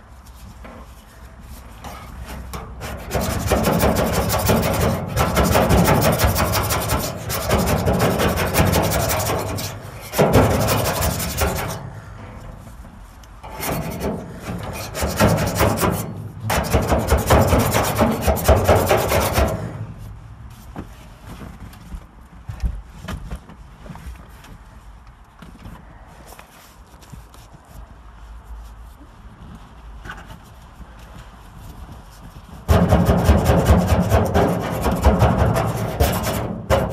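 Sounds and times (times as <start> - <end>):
hand scraper rasping on steel panel: 2.3 - 12.0, 13.4 - 19.7, 32.7 - 36.9.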